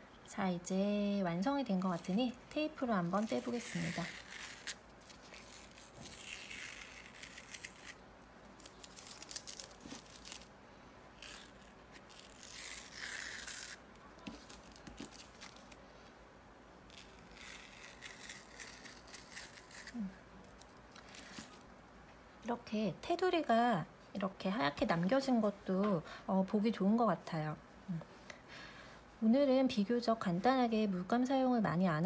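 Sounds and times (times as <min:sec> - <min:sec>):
masking tape being peeled: 0:01.7 - 0:10.5, 0:11.1 - 0:15.8, 0:16.9 - 0:21.7.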